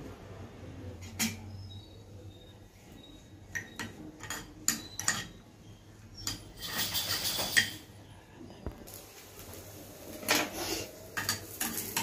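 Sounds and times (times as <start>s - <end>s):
utensil scraping frying pan: 3.0s - 7.9s, 10.1s - 12.0s.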